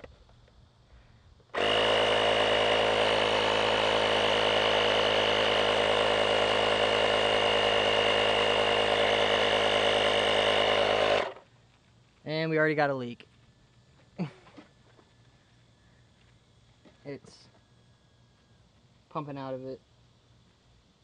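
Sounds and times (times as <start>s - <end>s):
air compressor motor buzzing: 1.5s - 11.5s.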